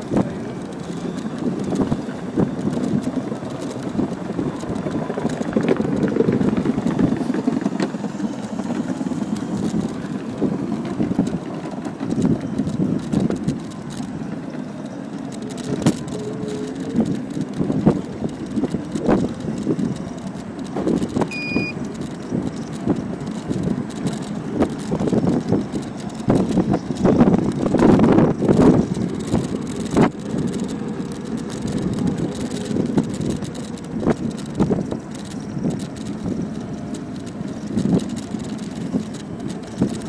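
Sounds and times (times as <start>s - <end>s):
scooter wheels rumbling on concrete: 0.0s - 40.0s
wheels knocking over joints: 0.0s - 40.0s.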